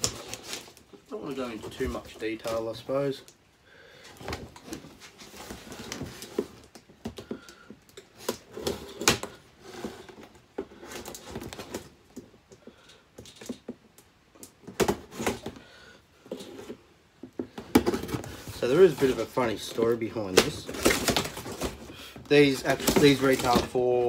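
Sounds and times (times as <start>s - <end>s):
cardboard box being handled: 16.4s - 24.0s.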